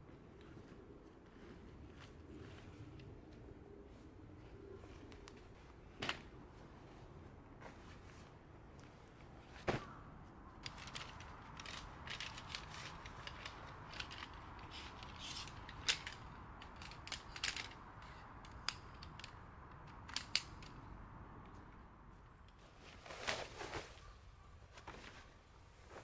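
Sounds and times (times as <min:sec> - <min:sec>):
tent pegs and poles clinking: 0:08.8 - 0:20.9
tent thudding on grass: 0:09.5 - 0:10.0.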